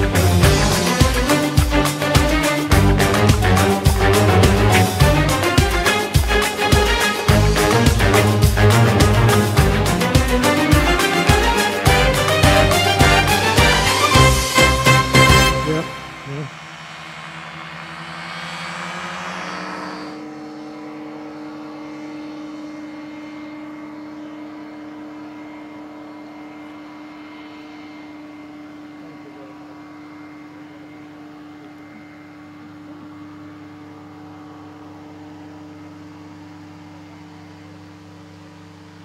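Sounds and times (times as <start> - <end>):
sound with rising pitches: 0.0 - 23.4
propeller engine drone: 0.0 - 39.0.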